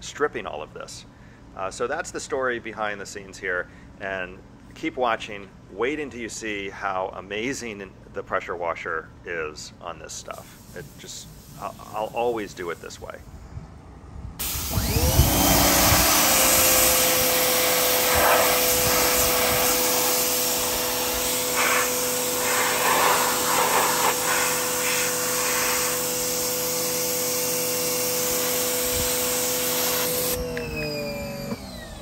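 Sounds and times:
pressure washer spray hiss: 10.3s - 13.3s, 14.4s - 30.4s.

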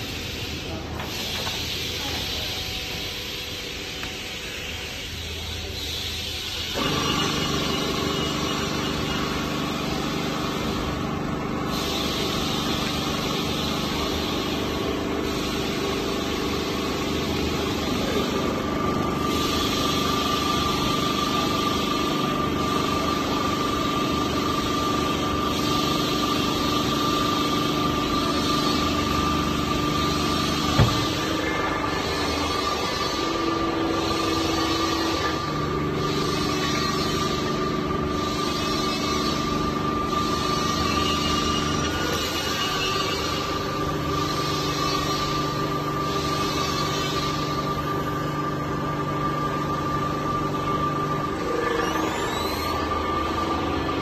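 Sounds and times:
hydraulic power unit humming: 0.0s - 54.0s
sharp knock: 30.8s - 31.2s.

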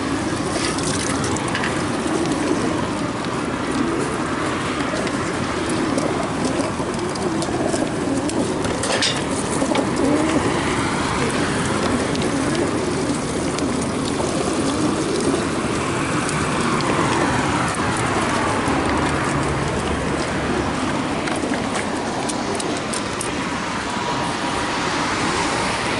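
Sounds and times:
pigeons cooing: 0.0s - 25.9s.

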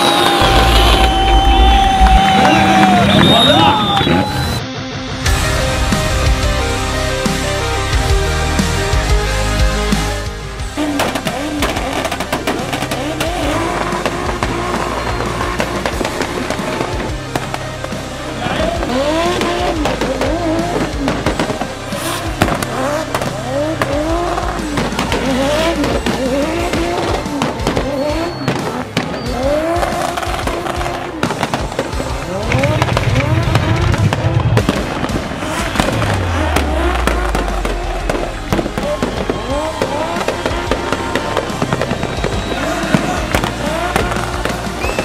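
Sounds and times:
car engine revving: 0.0s - 4.6s, 5.3s - 45.0s
bass-heavy background music: 0.0s - 45.0s
tyre squeal: 24.4s - 30.8s.

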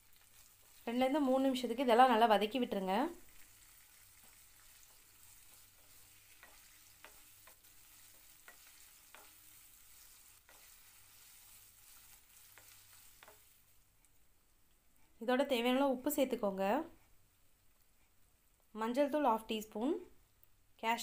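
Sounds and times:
vegetables sizzling in oil: 0.0s - 13.9s
wooden spatula tapping pan: 4.1s - 13.5s.

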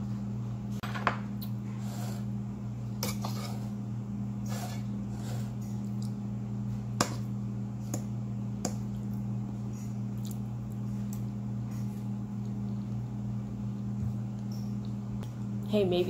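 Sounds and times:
quiet chewing: 9.8s - 13.1s.

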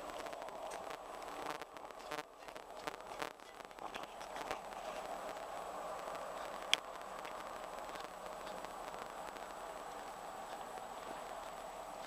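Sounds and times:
steady rushing noise: 0.0s - 12.0s.

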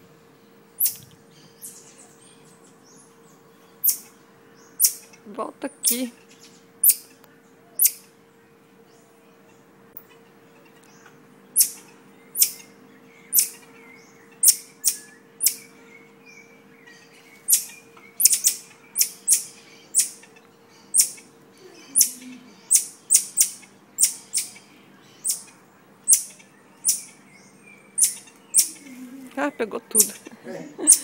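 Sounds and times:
marmoset high-pitched chirps: 0.8s - 1.8s, 3.8s - 4.1s, 4.7s - 5.2s, 6.8s - 7.1s, 7.8s - 8.1s, 11.6s - 13.7s, 14.4s - 15.8s, 17.4s - 27.2s, 27.9s - 28.9s, 29.8s - 31.0s.

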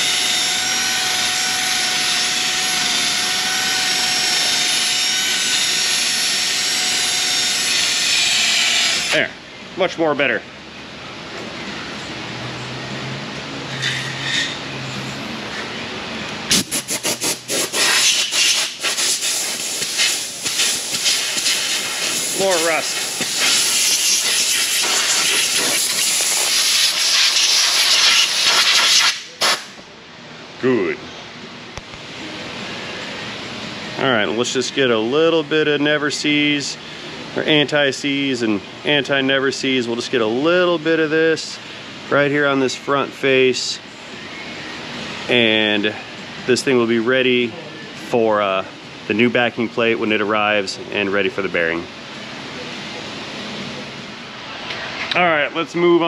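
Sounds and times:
cordless drill motor whine: 0.0s - 9.2s
compressed air blow gun hissing: 16.5s - 29.6s
wire brush scrubbing rust: 16.5s - 29.6s.

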